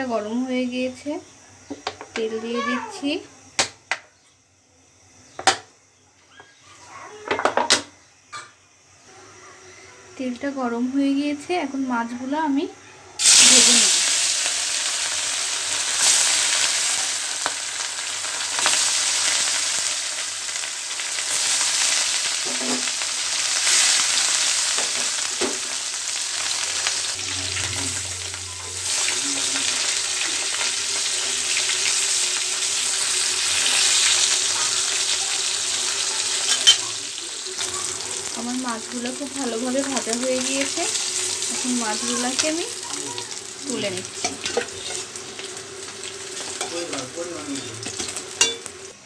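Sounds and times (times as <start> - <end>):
fish sizzling in hot oil: 13.2 - 49.0.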